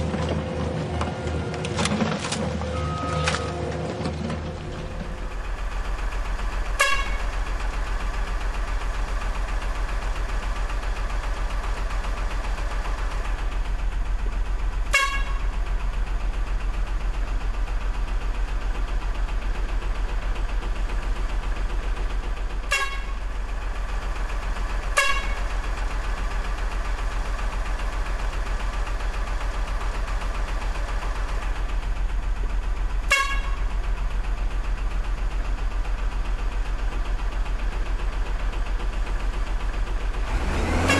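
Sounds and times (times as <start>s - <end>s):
toy truck horn toots: 6.8s - 7.3s, 14.9s - 15.4s, 22.7s - 23.2s, 25.0s - 25.4s, 33.1s - 33.6s, 40.7s - 40.9s.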